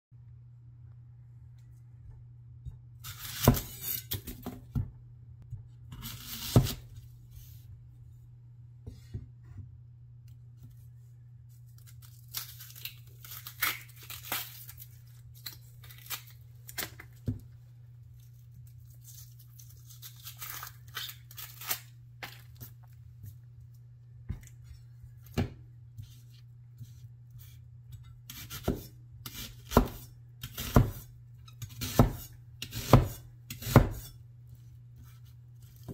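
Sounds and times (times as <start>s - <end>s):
onion skin crackling as peeled: 11.5s - 17.2s, 18.1s - 23.0s.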